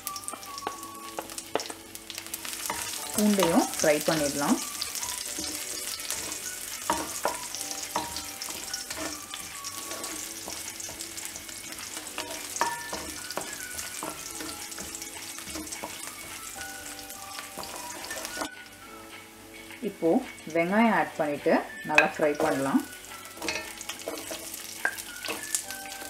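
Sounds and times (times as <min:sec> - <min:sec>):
spices sizzling in hot oil: 0:00.0 - 0:26.0
wooden spoon scraping pan: 0:02.6 - 0:18.5, 0:23.3 - 0:26.0.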